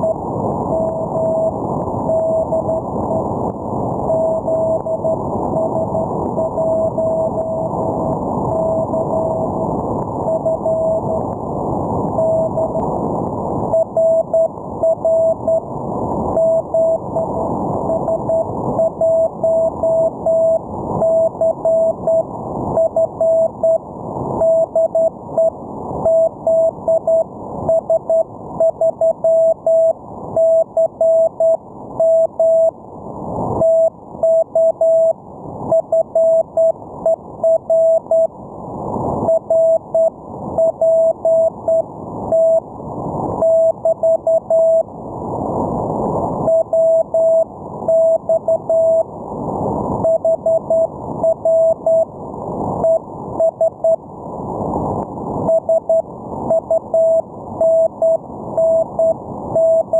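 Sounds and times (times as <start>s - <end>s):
morse code tone: 0.0s - 3.2s, 10.3s - 11.2s, 12.2s - 12.8s, 13.7s - 15.6s, 17.9s - 23.8s, 43.4s - 44.8s, 46.5s - 49.0s, 50.0s - 52.1s, 55.5s - 59.9s
radio hiss and static: 0.0s - 59.9s.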